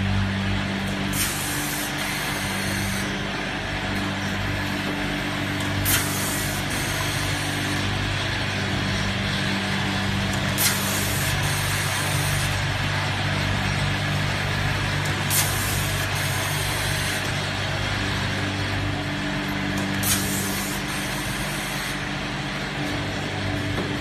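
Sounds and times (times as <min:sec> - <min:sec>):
machine motor hum and clatter: 0:00.0 - 0:24.0
pneumatic air hiss: 0:01.1 - 0:03.1, 0:05.8 - 0:07.5, 0:10.6 - 0:12.4, 0:15.3 - 0:16.9, 0:20.0 - 0:22.0.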